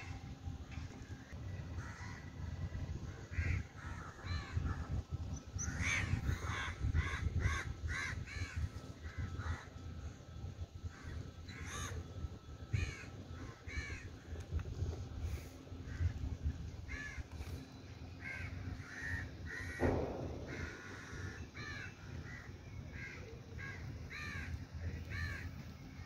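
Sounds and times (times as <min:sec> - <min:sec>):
steady low rumble: 0:00.0 - 0:26.0
crows cawing: 0:01.7 - 0:02.4, 0:03.0 - 0:04.8, 0:05.6 - 0:09.7, 0:10.9 - 0:12.0, 0:12.7 - 0:14.1, 0:16.9 - 0:17.3, 0:18.2 - 0:25.6.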